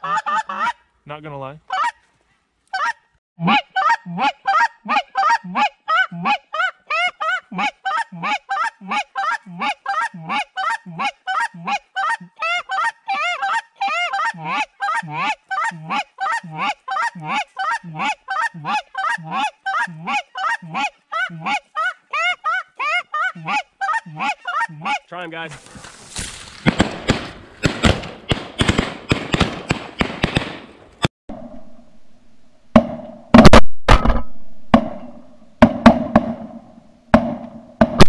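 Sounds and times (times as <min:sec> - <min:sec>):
goose honking: 0:02.7 - 0:21.9.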